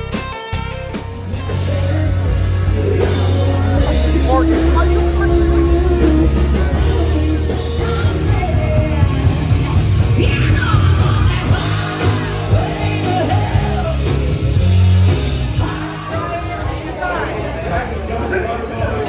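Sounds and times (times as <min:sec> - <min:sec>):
heavy bass line: 0:00.0 - 0:16.9
loud rock music: 0:00.0 - 0:19.0
person singing: 0:01.3 - 0:14.2.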